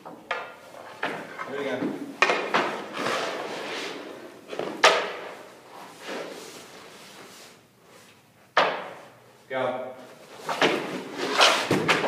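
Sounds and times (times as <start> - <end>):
skates scraping on ice: 2.8 - 6.7, 10.5 - 12.0.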